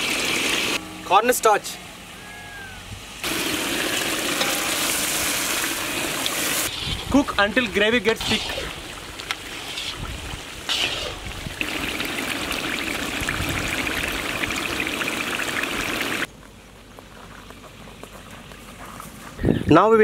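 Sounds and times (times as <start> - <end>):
gravy boiling and popping: 7.7 - 16.3.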